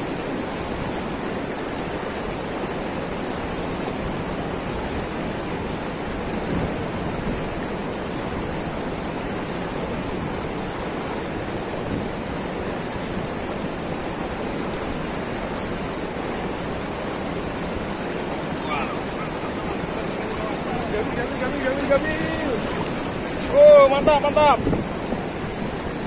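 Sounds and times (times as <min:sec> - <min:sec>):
river water rushing: 0:00.0 - 0:26.0.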